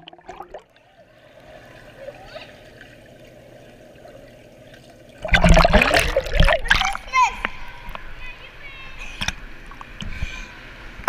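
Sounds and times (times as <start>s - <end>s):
muffled underwater wash: 0.0s - 11.0s
loud splashing: 5.2s - 7.8s.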